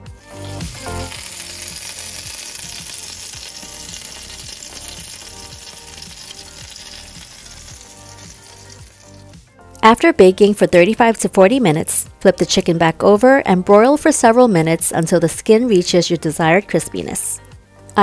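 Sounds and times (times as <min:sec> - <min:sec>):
chicken fat sizzling: 0:00.0 - 0:10.5, 0:14.0 - 0:17.1
soft background music: 0:00.0 - 0:18.0.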